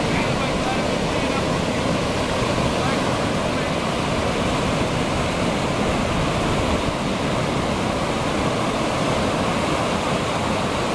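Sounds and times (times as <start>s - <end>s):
ocean surf breaking: 0.0s - 10.9s.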